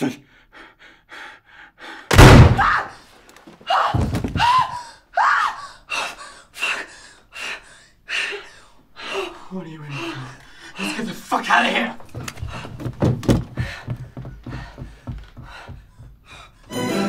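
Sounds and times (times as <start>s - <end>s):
sharp panicked gasps: 0.2s - 3.0s
shotgun blast: 2.1s - 2.7s
heavy thud: 2.1s - 2.8s, 12.7s - 14.1s.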